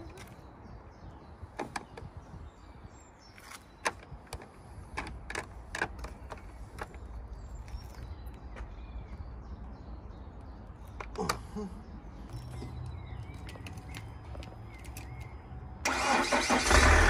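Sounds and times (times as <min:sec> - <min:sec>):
low wind rumble: 0:00.4 - 0:03.4.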